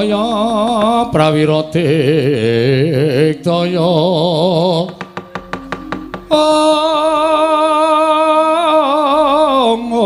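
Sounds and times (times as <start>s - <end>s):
person singing with vibrato: 0.0s - 5.0s, 6.0s - 10.0s
sharp percussion knocks: 4.8s - 6.9s.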